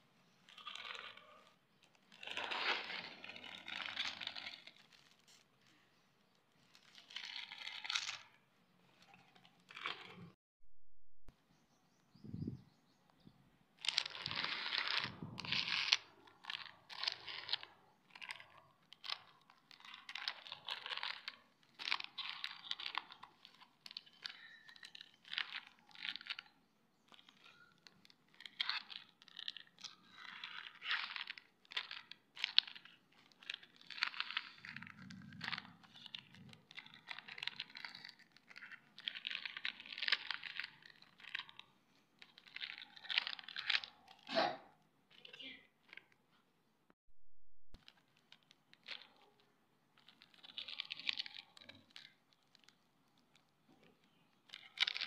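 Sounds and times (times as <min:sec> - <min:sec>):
plastic wrappers crinkling: 0:00.2 - 0:10.4, 0:13.8 - 0:44.3, 0:47.8 - 0:55.0.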